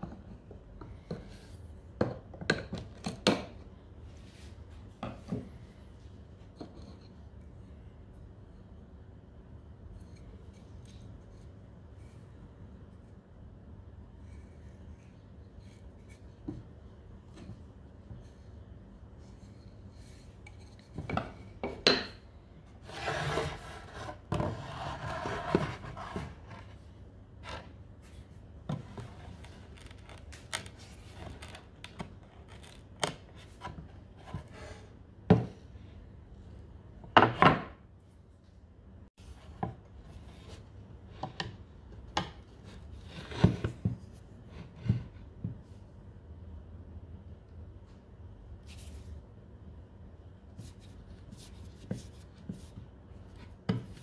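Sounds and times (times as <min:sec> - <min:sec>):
wood scraping: 0:22.8 - 0:26.8.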